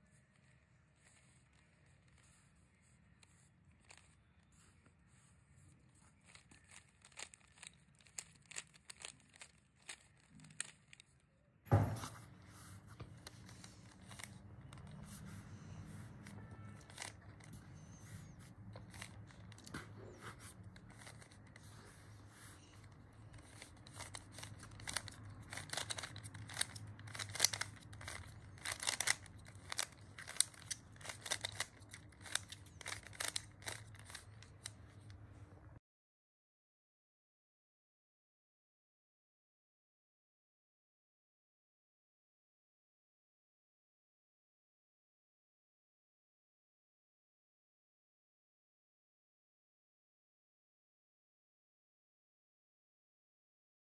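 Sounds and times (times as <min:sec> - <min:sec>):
puzzle cube clicking and rattling: 0:03.7 - 0:04.2, 0:05.8 - 0:11.2, 0:13.1 - 0:35.2
thump: 0:11.7 - 0:12.2.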